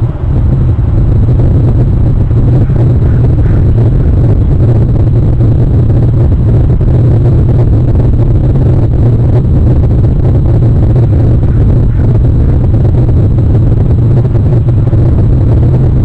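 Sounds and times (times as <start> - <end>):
loud steady low rumble: 0.0 - 16.0.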